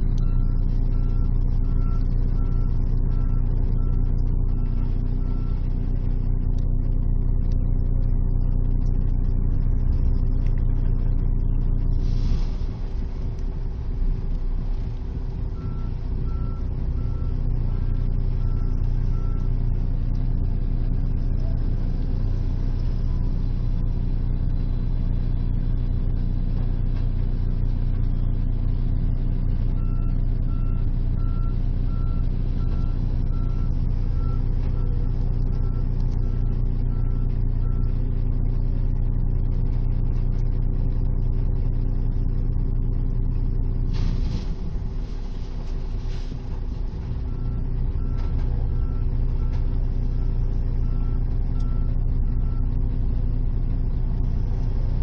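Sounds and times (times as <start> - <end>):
diesel engine running under load: 0.0 - 55.0
reversing alarm beeping: 0.1 - 5.7, 15.6 - 19.6, 29.8 - 38.0, 47.1 - 52.7
rushing noise: 11.8 - 16.3.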